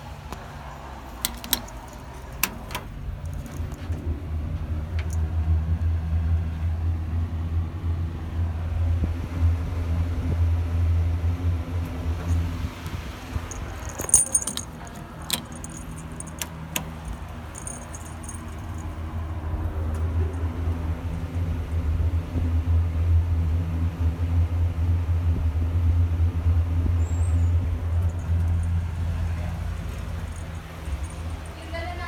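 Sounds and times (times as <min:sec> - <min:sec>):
elevator fan hum: 0:00.0 - 0:32.0
brief metallic rattle: 0:13.4 - 0:19.0, 0:27.8 - 0:31.5.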